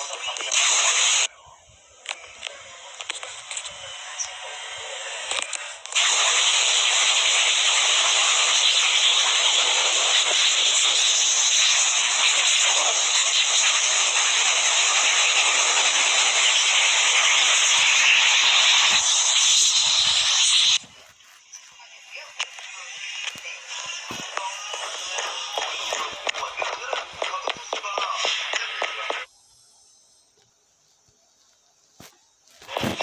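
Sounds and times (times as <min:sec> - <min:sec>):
loud steady hiss: 0:03.0 - 0:29.3.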